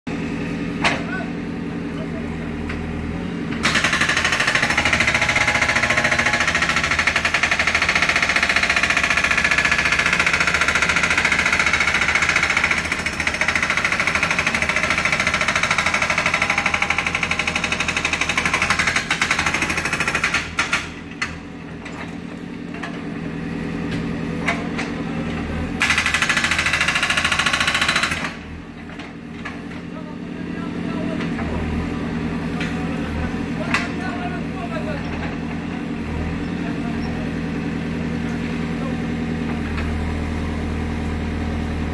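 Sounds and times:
pavement breaker hammering: 3.6s - 21.4s, 25.8s - 29.6s
diesel engine idling: 31.8s - 41.9s.

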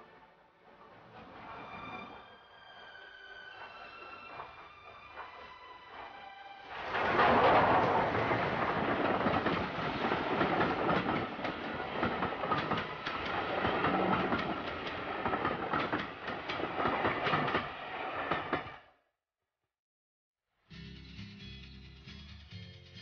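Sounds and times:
steady train rumble: 0.0s - 18.9s
train wheels clattering over rail joints: 6.8s - 18.8s.

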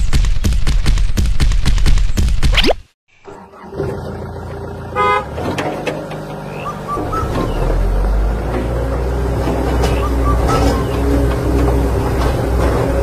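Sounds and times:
vehicle horn toot: 4.9s - 5.5s.

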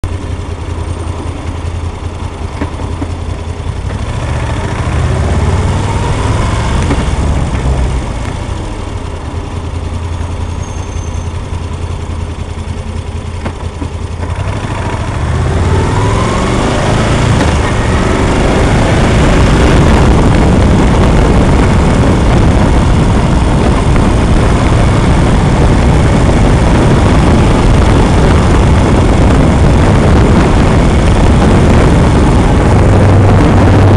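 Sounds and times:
motorcycle engine accelerating: 0.0s - 33.9s
wind rush on microphone: 13.5s - 33.9s.

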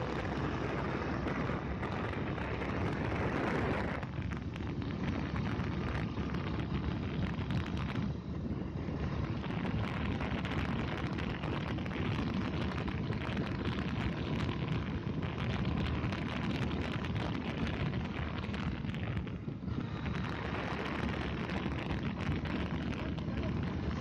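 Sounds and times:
motorcycle engine: 0.0s - 24.0s
wind buffeting microphone: 0.0s - 24.0s.

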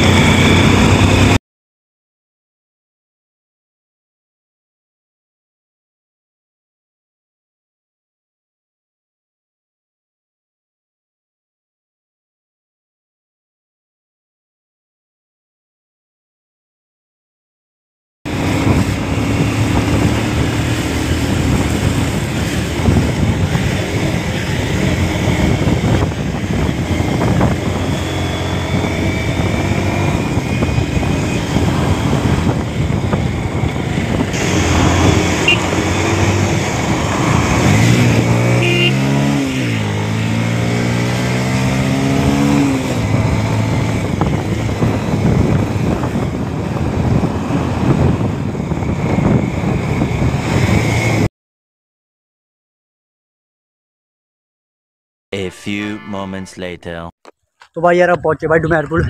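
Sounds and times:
motorcycle engine running: 0.0s - 1.4s, 18.3s - 40.2s
wind and road noise: 0.0s - 1.4s, 18.3s - 51.3s, 57.3s - 59.0s.

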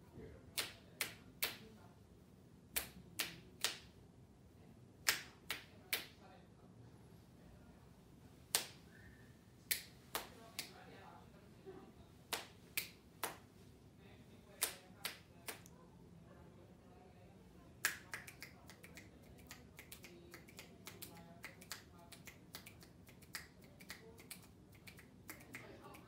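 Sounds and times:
finger snapping: 0.6s - 1.6s, 2.8s - 3.8s, 8.5s - 8.8s, 9.7s - 10.7s, 14.6s - 15.7s, 17.8s - 25.7s.

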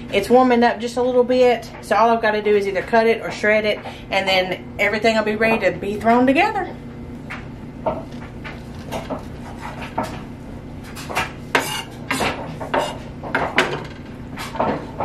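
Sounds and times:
knife chopping on wooden board: 11.0s - 13.7s.

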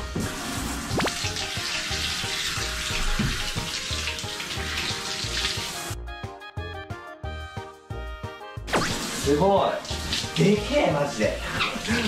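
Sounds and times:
shower head spraying water: 0.1s - 6.0s, 8.7s - 12.0s
background music with a beat: 5.8s - 9.6s.

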